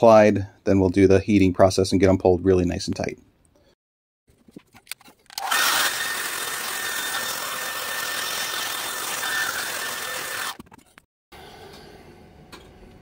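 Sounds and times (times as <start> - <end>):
hair dryer running: 5.4 - 10.6.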